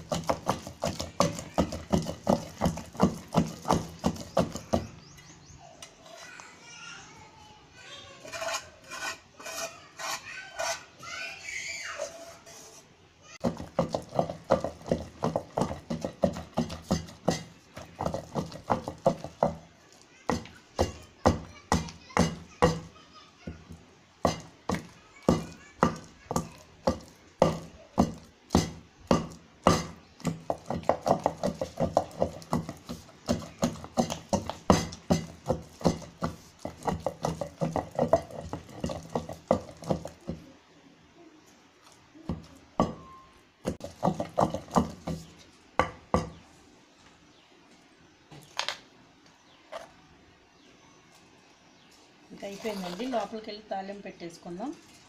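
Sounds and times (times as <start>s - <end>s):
pestle pounding in stone mortar: 0.0s - 5.1s, 13.4s - 40.5s, 42.3s - 46.4s.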